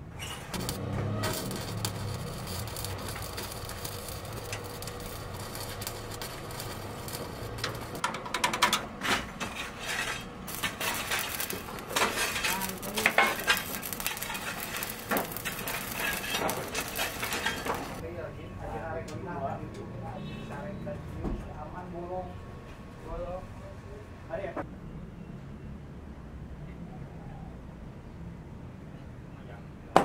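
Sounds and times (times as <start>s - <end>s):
welding arc crackling: 0.5s - 8.6s, 9.4s - 18.0s.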